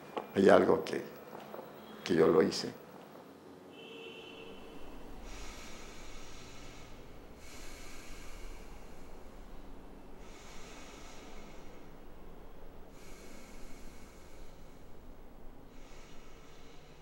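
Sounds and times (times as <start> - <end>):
steady low hum: 4.2 - 17.0
slow breathing close to microphone: 4.5 - 17.0.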